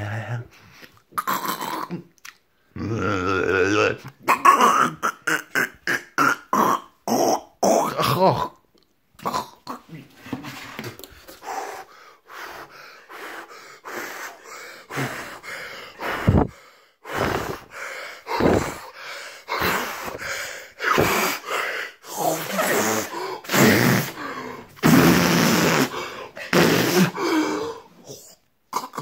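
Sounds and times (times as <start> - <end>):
man gasping and breathing hard: 11.3 - 24.8, 25.8 - 28.2.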